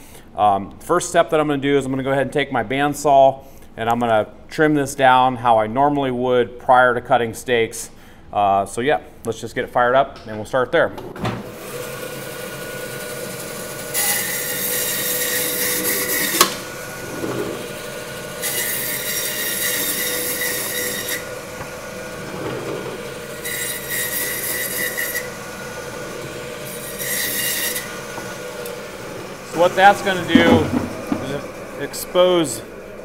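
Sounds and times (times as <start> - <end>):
bandsaw humming: 11.4 - 33.0.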